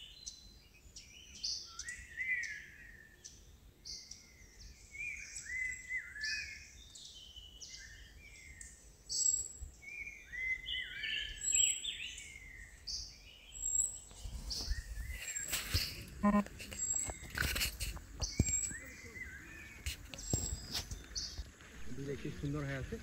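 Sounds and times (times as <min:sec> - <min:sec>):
birds whistling calls: 0:03.9 - 0:22.7
high sharp bird calls: 0:13.6 - 0:22.9.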